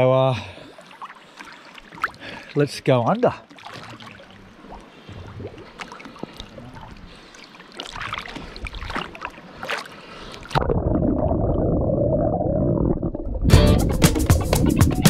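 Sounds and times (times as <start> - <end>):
sea water splashing and lapping: 0.0 - 11.6
muffled underwater rush: 3.4 - 15.0.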